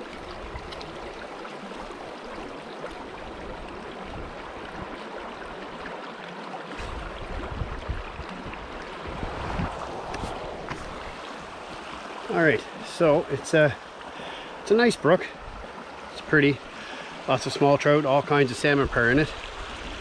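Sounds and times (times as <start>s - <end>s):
brook flowing water: 0.0s - 20.0s
camera handling rumble and bumps: 9.5s - 11.0s.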